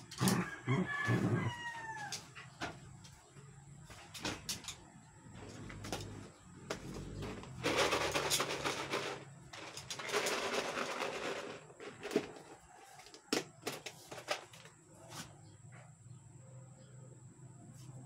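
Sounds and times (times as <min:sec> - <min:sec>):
plastic container of dog food rattling: 0:07.6 - 0:12.5.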